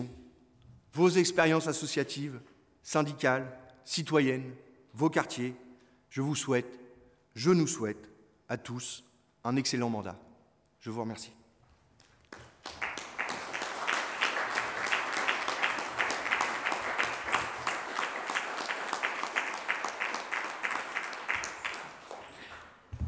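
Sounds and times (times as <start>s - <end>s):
crowd applauding: 12.3s - 23.0s.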